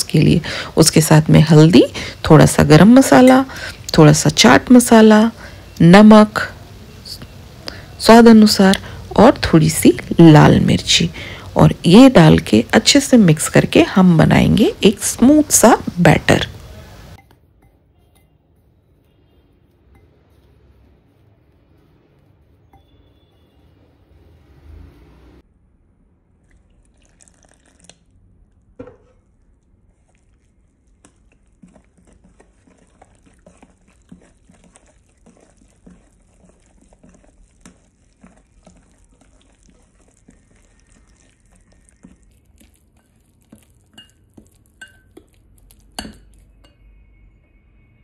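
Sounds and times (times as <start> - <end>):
spoon stirring batter in glass bowl: 2.4 - 5.3, 17.2 - 23.6, 26.4 - 47.6
water pouring: 26.4 - 46.3
spoon clinking against glass: 43.8 - 47.0.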